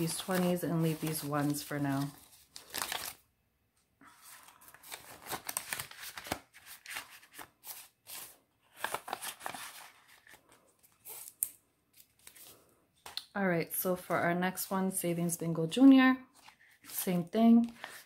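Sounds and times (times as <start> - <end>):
paper banknotes rustling: 0.0 - 3.2, 4.2 - 13.2, 16.4 - 18.0
plastic crinkling: 0.0 - 3.2.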